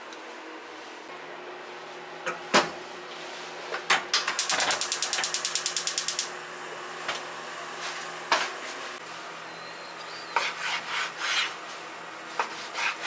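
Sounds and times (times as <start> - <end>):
gas igniter ticking: 4.2 - 6.3.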